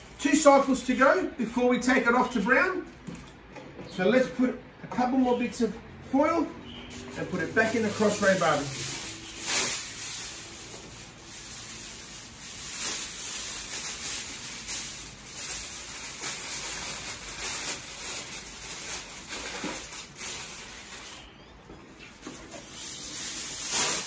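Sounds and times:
aluminium foil crinkling: 6.9 - 21.3, 22.1 - 24.0.

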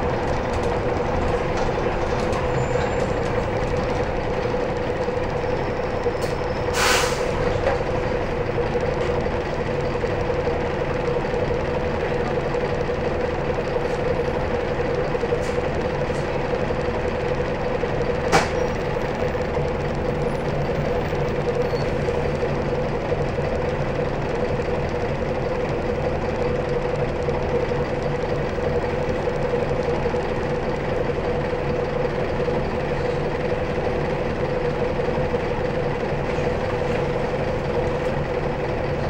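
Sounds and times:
bus engine droning: 0.0 - 39.0
air brakes hiss: 6.2 - 7.4.

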